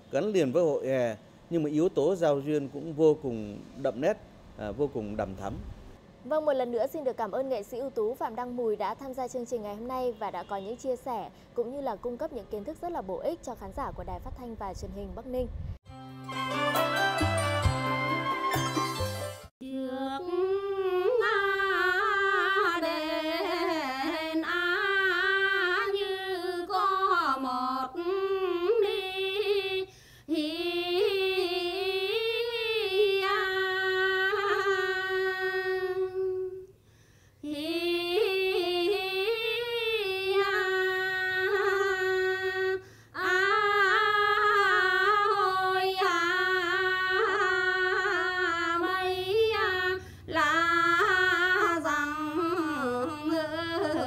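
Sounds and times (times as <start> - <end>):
woman singing unaccompanied: 19.6 - 36.7, 37.4 - 54.0.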